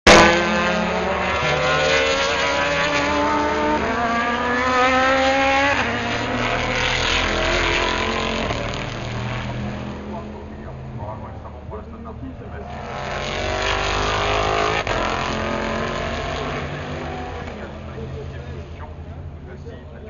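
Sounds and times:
race car engines accelerating: 0.1 - 20.0
car passing with deep rumble: 0.2 - 20.0.

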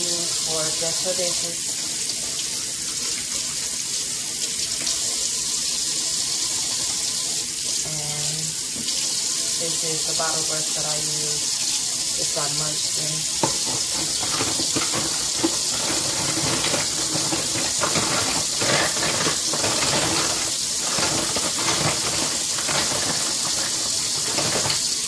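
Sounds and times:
tap running into sink: 8.7 - 9.2, 12.8 - 25.0
water splashing and scrubbing: 12.2 - 25.0.

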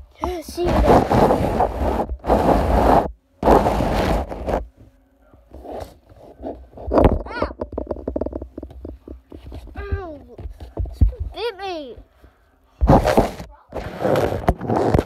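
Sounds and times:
phone microphone scraping and rubbing: 0.2 - 4.8, 5.5 - 11.2, 12.8 - 15.0
small knocks: 6.8 - 11.4.

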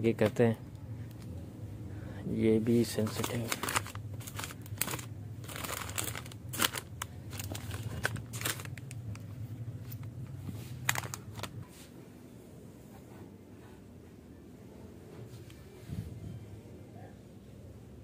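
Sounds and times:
plastic packets crinkling: 2.8 - 11.6.

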